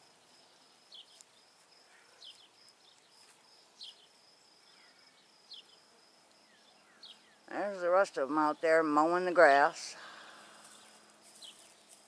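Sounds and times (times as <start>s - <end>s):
high-pitched insect trill: 0.0s - 7.7s.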